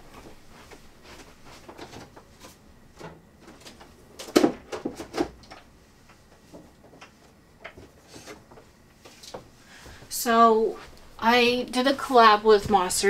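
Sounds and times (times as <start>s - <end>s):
objects knocking and clattering: 3.0s - 5.7s.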